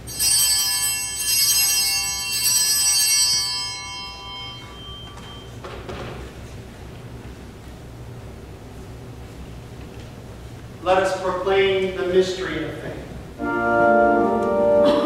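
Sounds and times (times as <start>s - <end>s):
altar bell ringing: 0.0s - 5.6s.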